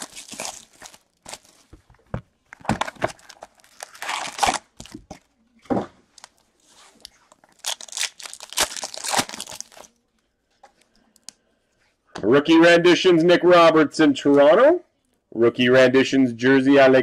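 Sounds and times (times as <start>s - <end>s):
pack wrapper torn open: 0.0s - 1.6s, 2.8s - 5.0s, 7.4s - 10.0s
plastic wrapping crinkling and tearing: 0.0s - 5.3s, 6.2s - 10.1s
card packs handled: 0.0s - 5.4s, 6.2s - 10.0s.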